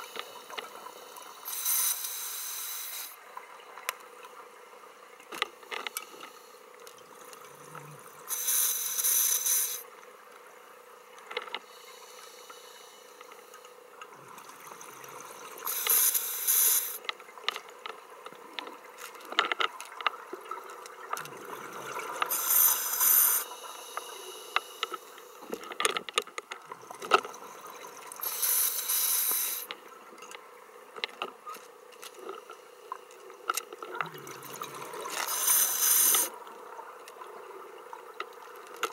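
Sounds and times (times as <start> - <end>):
quiet inhalations: 6.0 - 6.8, 11.6 - 13.8, 22.3 - 25.8
bubbling exhalations underwater: 33.9 - 35.1.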